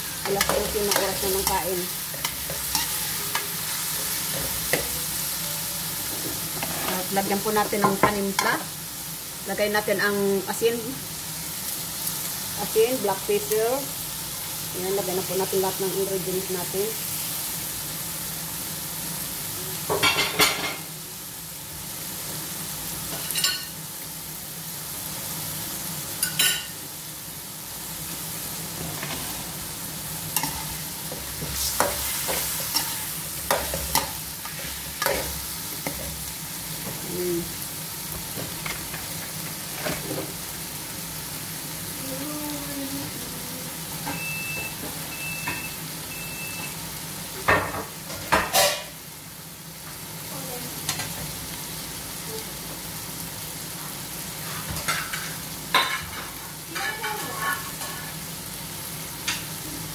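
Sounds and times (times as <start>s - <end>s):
chicken sizzling in a pan: 0.0s - 59.9s
metal spoon scraping a pan: 0.2s - 4.9s, 6.5s - 7.1s, 30.4s - 36.1s
short high beeps: 44.1s - 46.8s.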